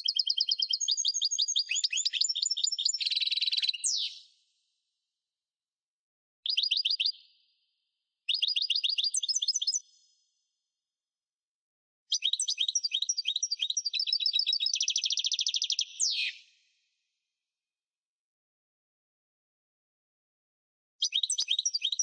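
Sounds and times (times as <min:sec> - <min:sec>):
goldfinch twittering song: 0:00.0 - 0:04.2, 0:12.1 - 0:16.4, 0:21.0 - 0:22.0.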